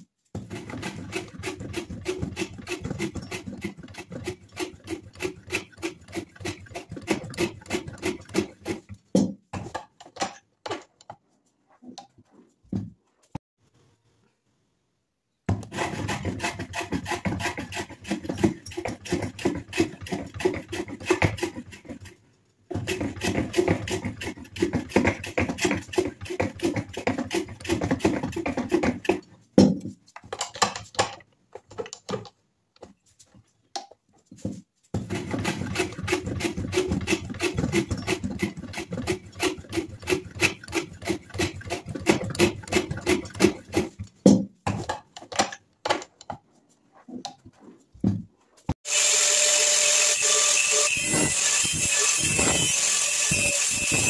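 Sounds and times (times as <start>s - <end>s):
file rasping on wood: 0.4s - 9.0s, 15.5s - 29.2s, 35.0s - 44.0s.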